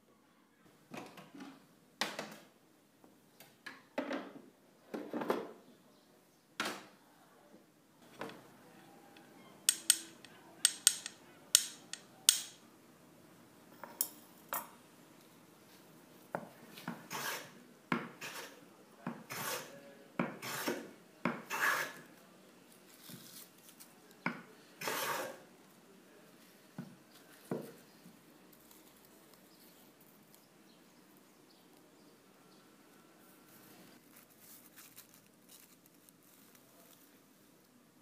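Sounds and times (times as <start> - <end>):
hand plane cutting wood shaving: 17.1 - 17.5, 19.3 - 19.7, 20.4 - 20.8, 21.5 - 22.0, 24.8 - 25.4
wooden block rubbing on abrasive: 17.1 - 17.6, 19.3 - 19.7, 20.4 - 20.8, 21.5 - 22.0, 24.8 - 25.4.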